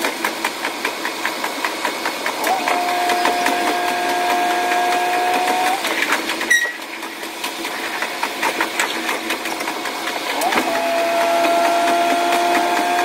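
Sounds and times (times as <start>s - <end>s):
diesel railcar engine hum: 0.0s - 13.0s
rapid wheel clicking: 0.0s - 13.0s.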